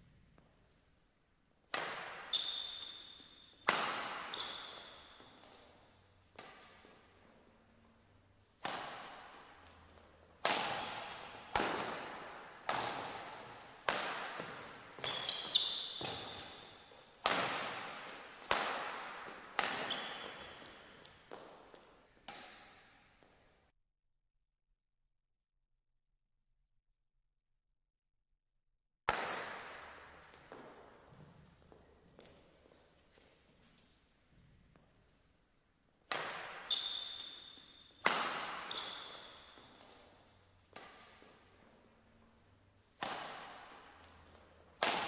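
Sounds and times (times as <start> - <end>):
rackets striking shuttlecock: 1.7 - 7.2, 8.6 - 23.0, 29.1 - 31.1, 36.1 - 41.7, 42.8 - 45.0
shoe squeaks on court: 2.1 - 6.8, 10.6 - 22.9, 29.1 - 31.5, 36.5 - 40.5.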